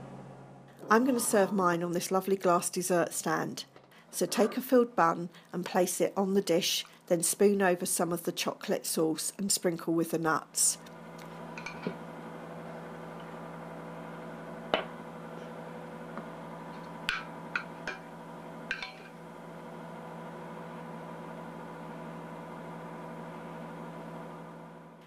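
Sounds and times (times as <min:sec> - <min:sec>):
steady electrical hum: 0:00.0 - 0:25.0.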